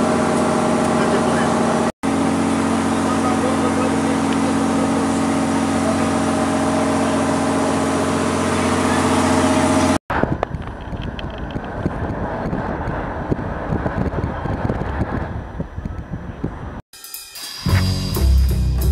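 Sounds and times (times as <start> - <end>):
boat engine running: 0.0 - 12.9
wind buffeting microphone: 10.1 - 16.8.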